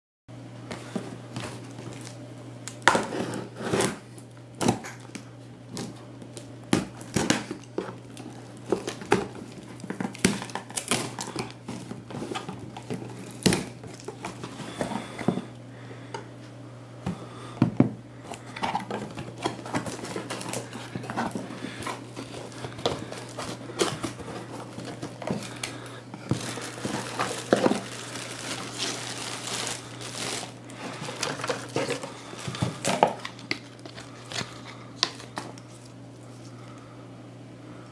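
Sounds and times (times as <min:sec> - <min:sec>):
plastic wrap tearing and crinkling: 0:01.3 - 0:04.0, 0:04.8 - 0:14.8, 0:18.4 - 0:36.0.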